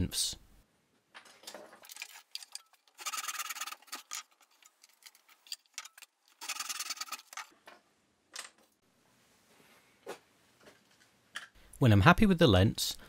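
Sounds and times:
wood being handled: 0:01.2 - 0:07.9.

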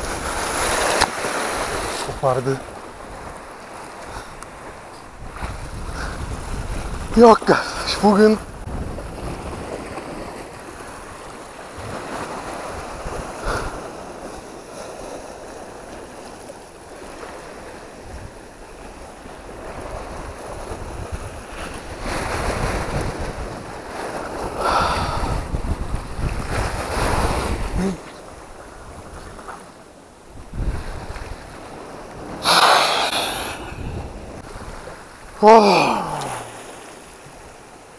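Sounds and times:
wind buffeting microphone: 0:00.0 - 0:14.4, 0:17.0 - 0:29.5, 0:30.3 - 0:35.4
small waves washing over rocks: 0:00.0 - 0:29.7.

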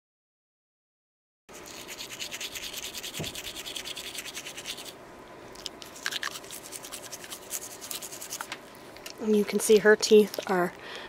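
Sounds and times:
toothbrush scrubbing teeth: 0:01.5 - 0:05.0, 0:05.6 - 0:08.5.

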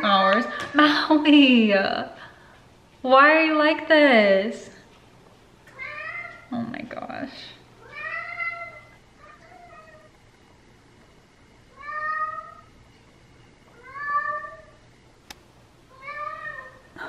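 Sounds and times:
cat meowing: 0:07.8 - 0:10.1, 0:11.7 - 0:12.7, 0:13.8 - 0:14.8, 0:15.9 - 0:16.9.

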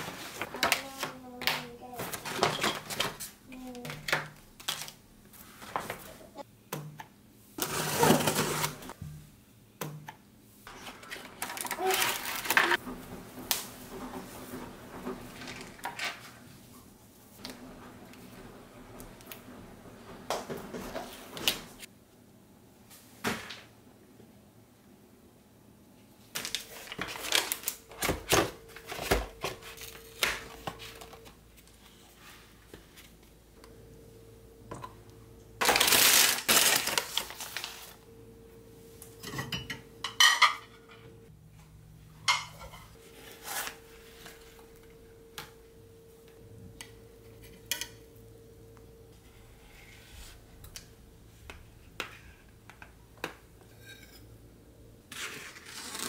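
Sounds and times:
faint steady hum: 0:27.4 - 0:55.5.

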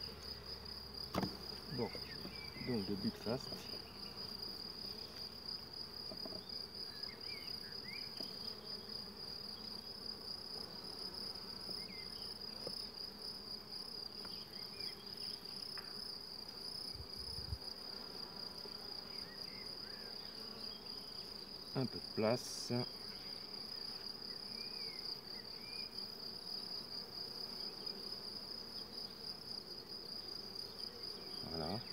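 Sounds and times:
honeybees humming: 0:00.0 - 0:31.9.

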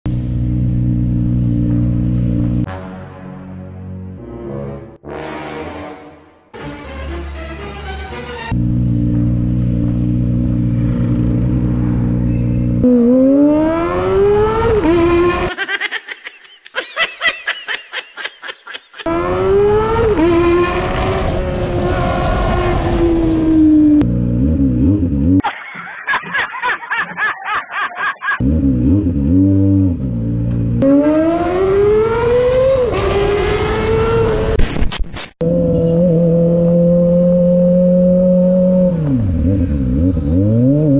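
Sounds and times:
motorcycle engine revving: 0:00.1 - 0:02.7, 0:08.5 - 0:15.5, 0:19.0 - 0:25.4, 0:28.4 - 0:34.6, 0:35.4 - 0:40.9.

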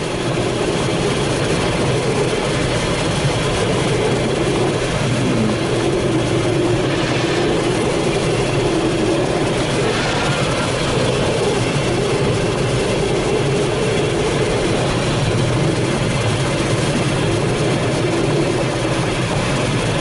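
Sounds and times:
air rushing around canopy: 0:00.0 - 0:20.0.

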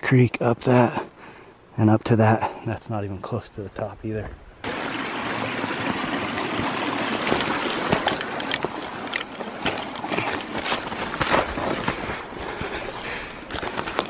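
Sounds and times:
twigs snapping and scraping: 0:08.0 - 0:11.4, 0:13.4 - 0:14.0
boots crunching through snow: 0:09.4 - 0:14.0.

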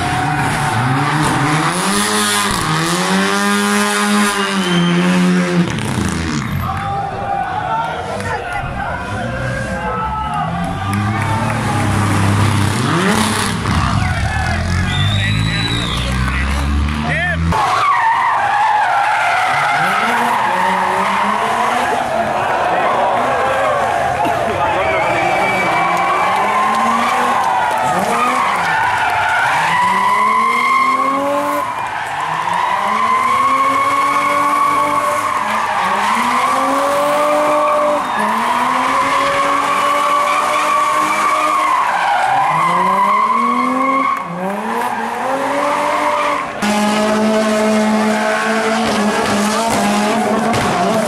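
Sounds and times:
rally car engine revving: 0:00.0 - 0:06.9, 0:07.9 - 0:51.0
tyres squealing: 0:13.6 - 0:16.6.

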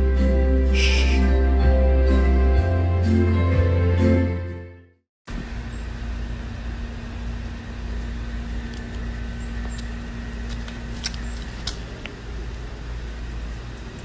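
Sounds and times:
faint steady hum: 0:05.3 - 0:14.0
low mechanical rumble: 0:05.3 - 0:14.0.

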